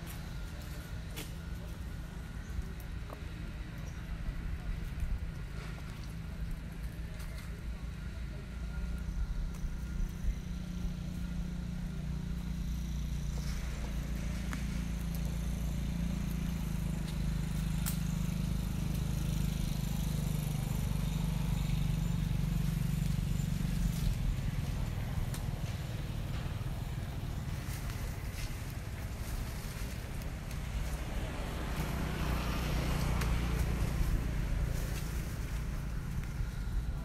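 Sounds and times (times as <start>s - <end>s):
motor humming: 7.7s - 37.0s.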